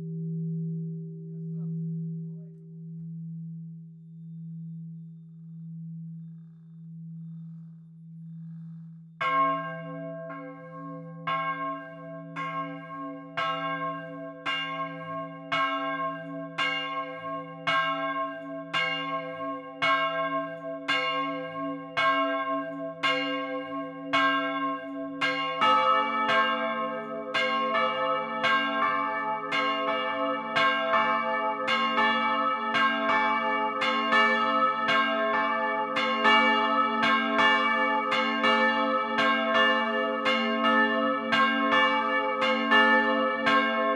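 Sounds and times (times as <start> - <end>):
deeper church bell: 0.0 - 43.9
church bell ringing: 9.2 - 43.9.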